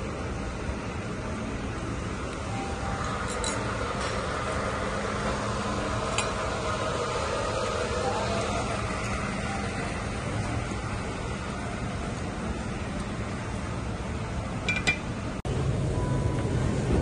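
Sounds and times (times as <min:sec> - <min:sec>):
air conditioning hum: 0:00.0 - 0:17.0
murmur of distant voices: 0:02.6 - 0:13.6.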